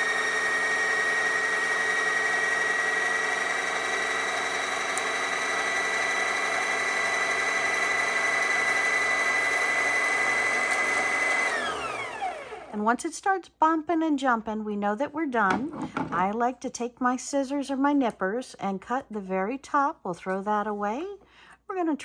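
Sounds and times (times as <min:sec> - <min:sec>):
sewing machine motor whine: 0:00.0 - 0:12.7.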